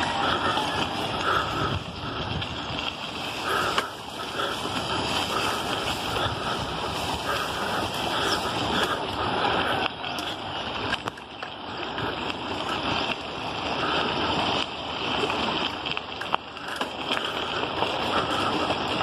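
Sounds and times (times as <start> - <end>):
wind rushing over microphone: 0.0 - 11.1
bicycle clicks and knocks: 0.0 - 19.0.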